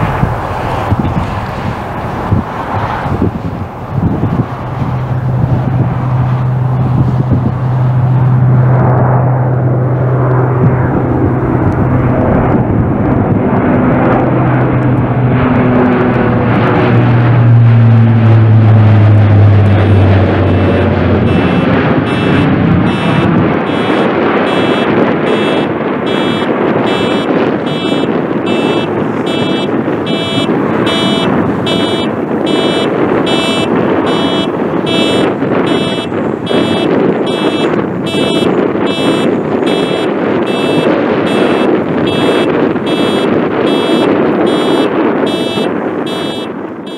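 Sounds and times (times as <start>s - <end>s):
turboprop aircraft drone overhead: 0.0s - 46.9s
pulsing high-pitched tone: 19.6s - 46.9s.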